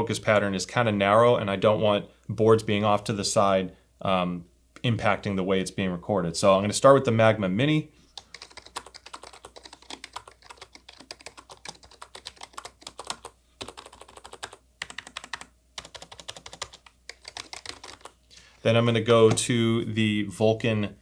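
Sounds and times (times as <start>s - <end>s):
fast keyboard typing: 8.2s - 18.2s.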